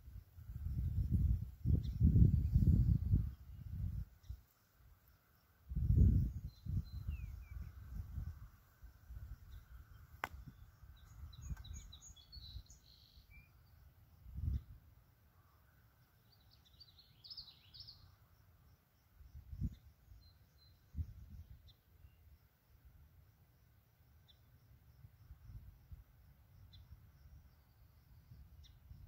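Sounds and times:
wind buffeting microphone: 0:00.4 - 0:04.2, 0:05.7 - 0:12.8
small birds chirping: 0:00.5 - 0:14.8, 0:15.5 - 0:22.4, 0:24.2 - 0:25.6, 0:26.5 - 0:29.0.

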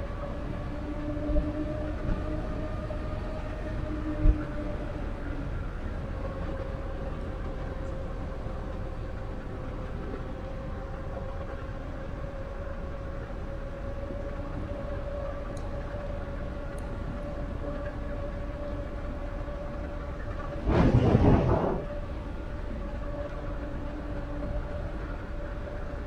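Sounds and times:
wind: 0:00.0 - 0:26.0
tyres rumbling on asphalt: 0:20.5 - 0:22.1.

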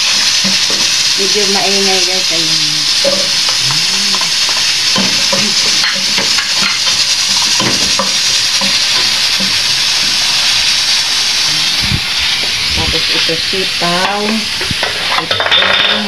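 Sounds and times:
onions sizzling in a pot: 0:00.0 - 0:16.0.

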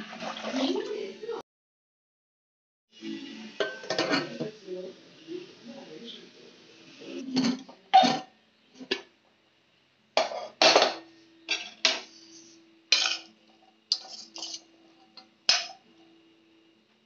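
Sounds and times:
metal ladle clanking on pot: 0:15.2 - 0:15.8.

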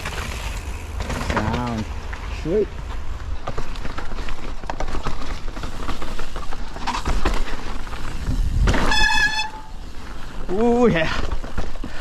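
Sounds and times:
bike clattering over rocks: 0:00.0 - 0:12.0
wind rumble on microphone: 0:08.0 - 0:09.2.

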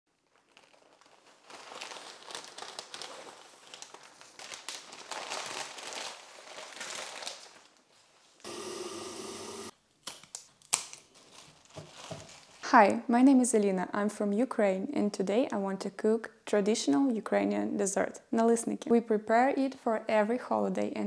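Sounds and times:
paper wrapping crinkling: 0:00.1 - 0:08.4, 0:10.2 - 0:12.6.

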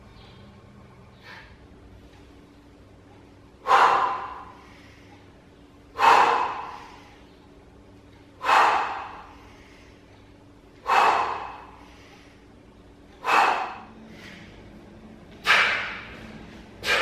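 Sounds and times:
man huffing sharp breaths: 0:03.6 - 0:07.3, 0:08.4 - 0:10.2, 0:10.8 - 0:17.0.

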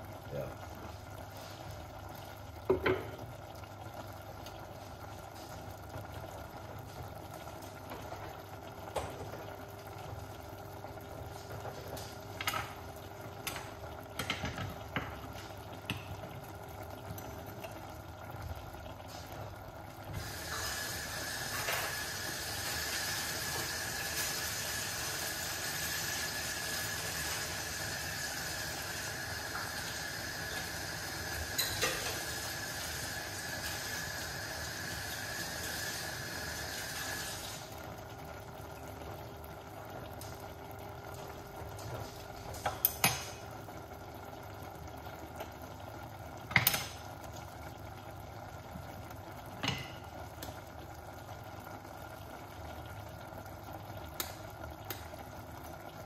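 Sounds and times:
vegetables sizzling in a pan: 0:20.1 - 0:37.8.

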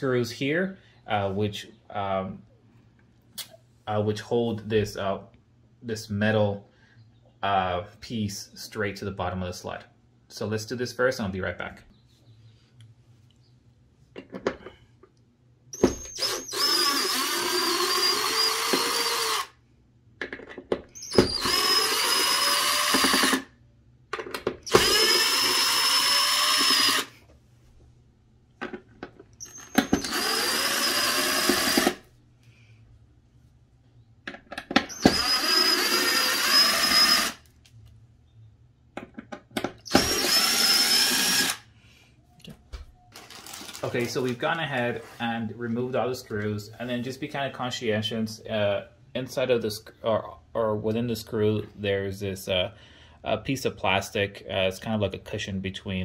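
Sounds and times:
cordless driver motor whine: 0:24.7 - 0:27.1, 0:29.4 - 0:32.0, 0:34.9 - 0:37.4.

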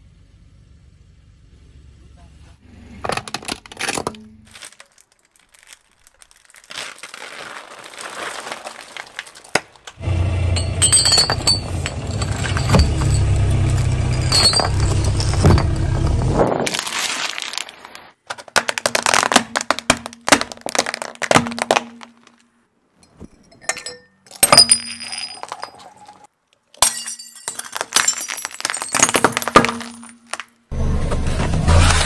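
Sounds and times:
car rumble: 0:00.0 - 0:03.4, 0:10.0 - 0:16.7, 0:30.7 - 0:32.0
glass cracking under tyre: 0:03.3 - 0:22.5, 0:24.3 - 0:30.7.

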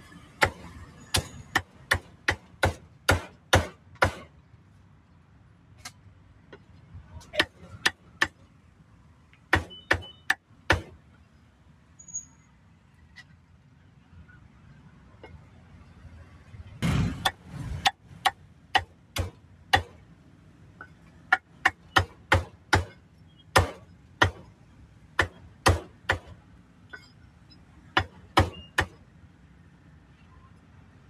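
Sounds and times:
cleaver chopping meat: 0:00.4 - 0:04.3, 0:23.6 - 0:24.4, 0:25.2 - 0:26.3.

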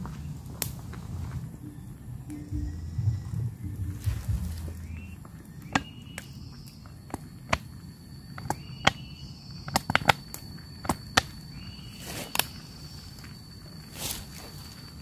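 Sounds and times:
campfire crackling: 0:00.0 - 0:15.0
faint steady high tone: 0:01.5 - 0:09.6.

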